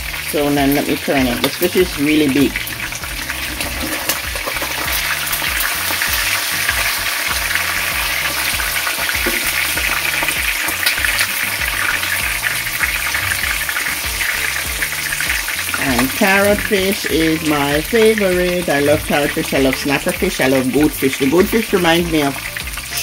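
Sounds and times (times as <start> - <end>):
fish sizzling in hot oil: 0.0 - 23.0
low bass background music: 0.0 - 23.0
spatula scraping and ticking: 2.5 - 16.7.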